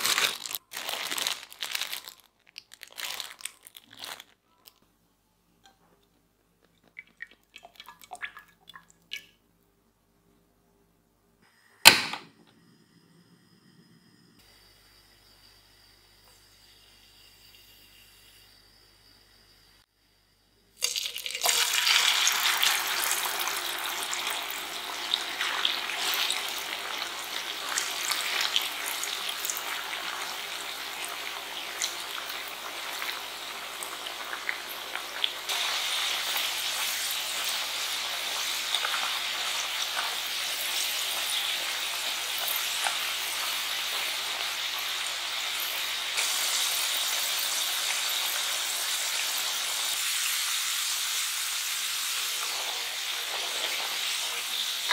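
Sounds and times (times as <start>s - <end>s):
potatoes sizzling in oil: 14.1s - 20.2s, 20.8s - 54.9s.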